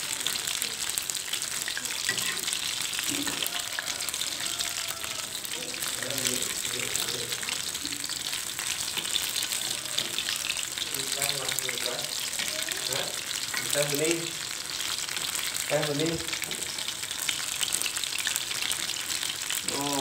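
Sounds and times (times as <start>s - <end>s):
food sizzling in hot oil: 0.0s - 20.0s
metal spatula stirring in wok: 1.3s - 4.5s.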